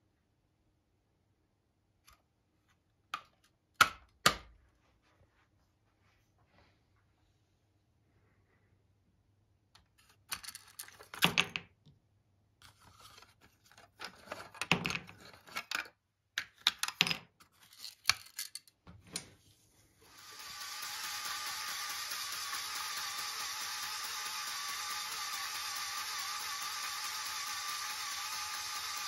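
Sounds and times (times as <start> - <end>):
plastic parts clicking and rattling: 9.8 - 11.6, 12.6 - 19.3.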